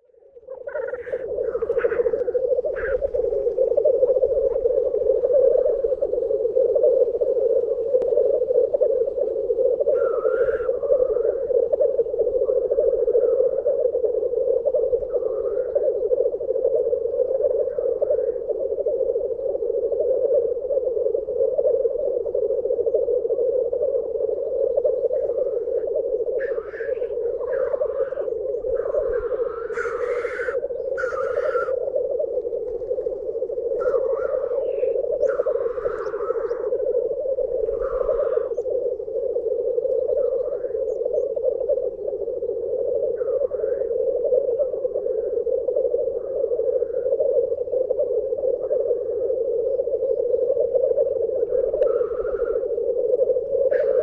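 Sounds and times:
black grouse bubbling display song: 0.0 - 54.0
higher rising bird calls: 0.5 - 3.4, 9.9 - 11.2, 26.4 - 31.8, 33.8 - 36.8.

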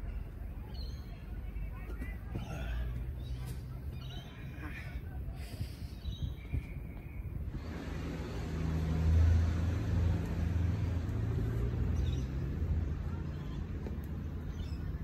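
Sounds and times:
motor vehicle passing: 7.5 - 15.0.

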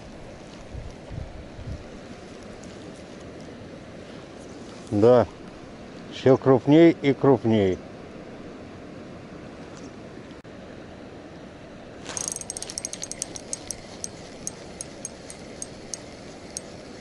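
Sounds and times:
fishing reel line hiss: 12.0 - 17.0
river current rushing: 12.0 - 17.0
fishing reel ticking: 12.1 - 17.0.

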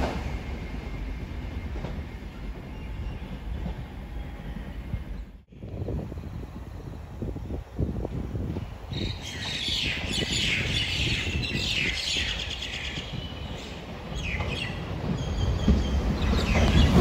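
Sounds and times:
wind rumble on microphone: 4.7 - 17.0.

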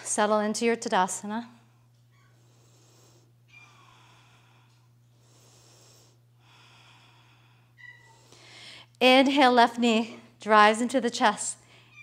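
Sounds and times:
low steady hum: 0.0 - 12.0
faint breaths through nose: 2.4 - 8.9.

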